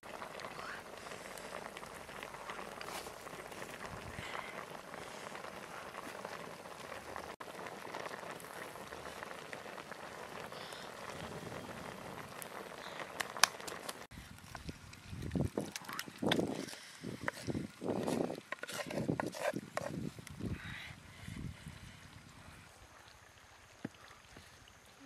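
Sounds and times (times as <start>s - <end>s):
sharp crackles: 0.0s - 18.5s
water boiling in a wok: 0.0s - 25.0s.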